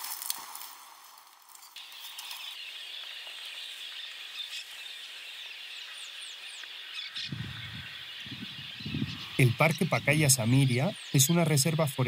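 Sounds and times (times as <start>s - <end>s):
high-pitched insect chorus: 1.5s - 12.0s.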